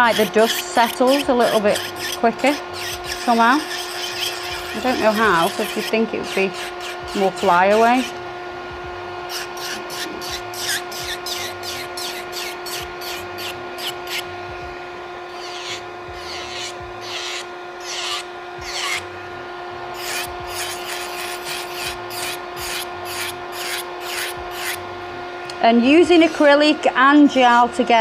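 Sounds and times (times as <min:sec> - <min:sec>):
nail file rasping: 0:00.0 - 0:08.1, 0:09.3 - 0:14.2, 0:15.3 - 0:19.0, 0:20.0 - 0:24.8
electric motor whine: 0:00.0 - 0:28.0.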